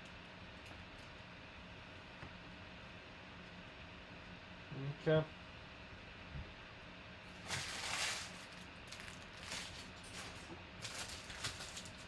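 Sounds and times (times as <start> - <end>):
wrappers crinkling: 7.3 - 12.0.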